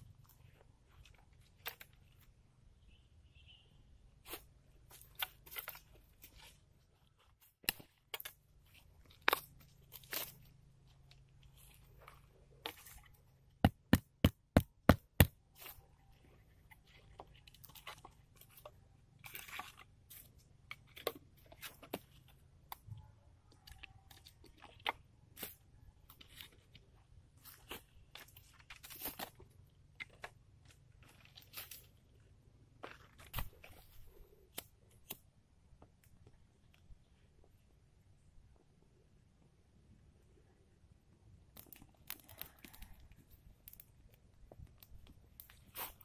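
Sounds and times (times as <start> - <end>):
twigs and needles crunching: 4.2 - 14.1, 15.0 - 22.8, 23.5 - 35.2, 41.5 - 46.0.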